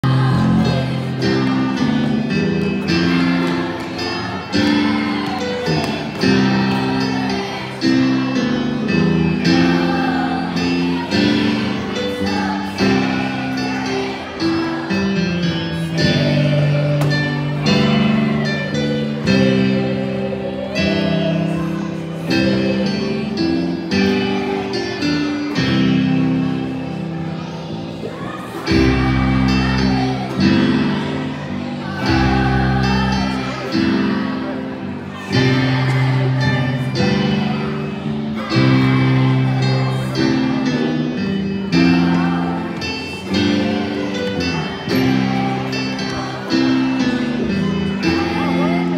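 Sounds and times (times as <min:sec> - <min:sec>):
children singing: 0:00.0 - 0:48.9.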